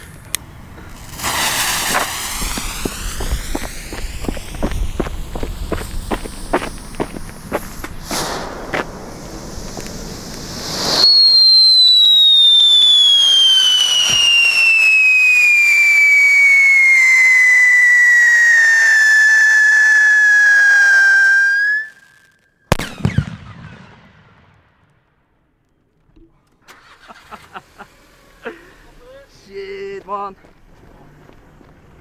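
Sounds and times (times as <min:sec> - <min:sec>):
sharp firework crack: 0:00.0 - 0:25.4
firework fountain hissing: 0:00.1 - 0:22.1
falling firework whistle: 0:01.2 - 0:24.5.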